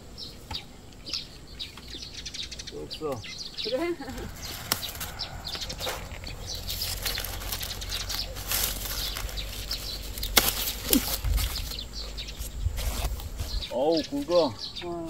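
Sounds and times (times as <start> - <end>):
leaves and paper bags rustling: 3.6 - 15.0.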